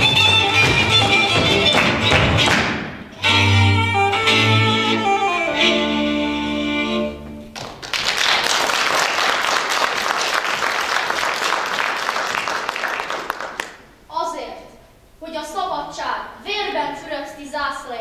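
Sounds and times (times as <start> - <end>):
fiddle-led folk dance music: 0.0 - 7.5
audience applauding: 7.5 - 13.8.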